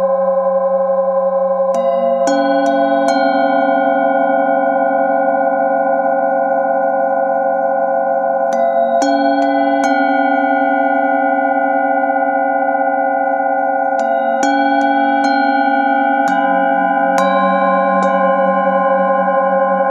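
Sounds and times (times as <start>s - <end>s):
singing bowls ringing: 0.0s - 19.9s
mallet striking singing bowls: 8.5s - 11.1s, 13.9s - 19.9s.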